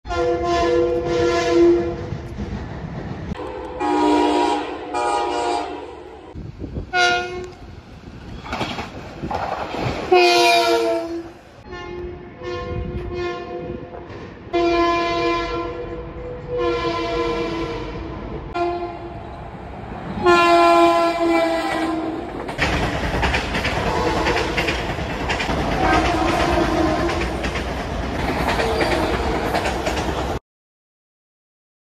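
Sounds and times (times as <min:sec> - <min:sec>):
passing train rumble: 0:00.0 - 0:30.4
train horns sounding a chord: 0:00.1 - 0:02.1, 0:03.4 - 0:07.6, 0:10.1 - 0:13.9, 0:14.5 - 0:19.3, 0:20.2 - 0:22.3, 0:23.9 - 0:24.7, 0:25.8 - 0:27.4
rail clatter: 0:00.9 - 0:05.0, 0:06.3 - 0:11.4, 0:18.4 - 0:30.4.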